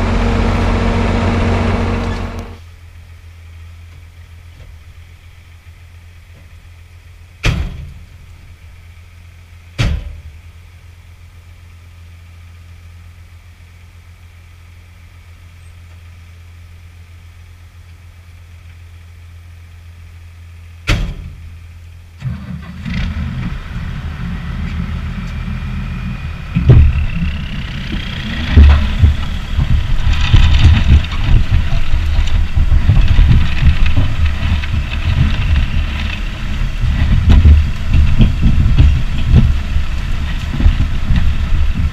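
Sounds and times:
low hum: 0.0s - 41.9s
tractor engine running: 0.0s - 41.9s.

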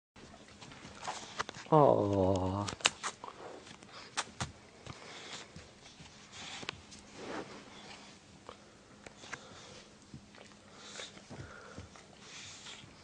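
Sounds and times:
dog sniffing: 4.9s - 8.2s.

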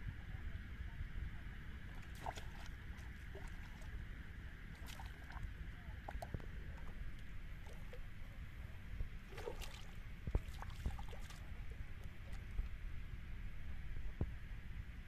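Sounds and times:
fish splashing at water surface: 1.9s - 3.9s, 4.7s - 5.5s, 9.2s - 11.5s.

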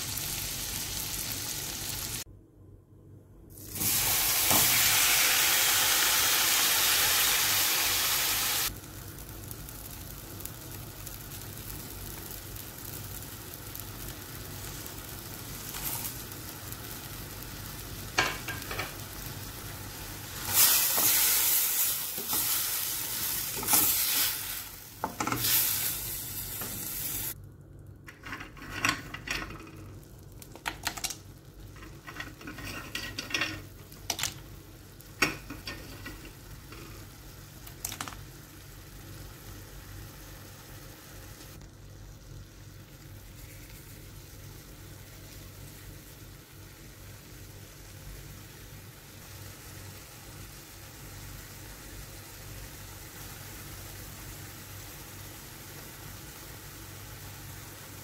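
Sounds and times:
tomatoes sizzling in hot oil: 0.0s - 2.3s, 3.5s - 27.4s, 29.0s - 58.0s
spoon scraping a pan: 31.8s - 33.7s.

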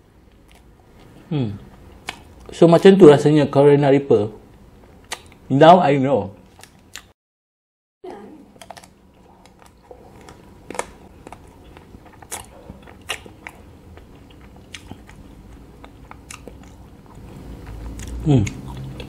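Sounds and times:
chewing: 0.3s - 2.5s, 8.6s - 19.0s.

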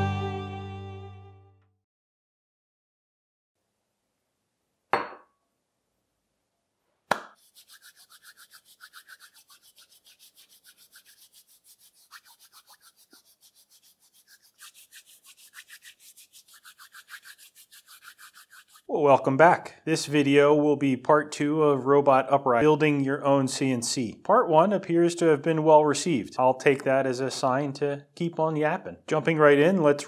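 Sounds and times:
palms rubbing together: 7.2s - 18.9s.

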